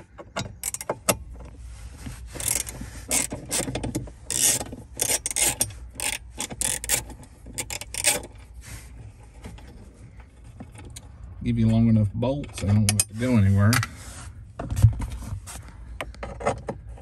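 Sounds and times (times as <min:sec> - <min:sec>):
socket ratchet clicking: 0:00.4 - 0:01.2, 0:02.4 - 0:08.3.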